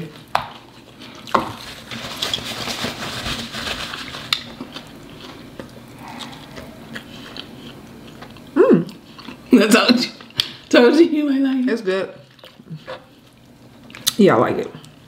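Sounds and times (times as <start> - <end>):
person chewing food: 0.1 - 2.4, 4.0 - 10.7, 12.2 - 14.2.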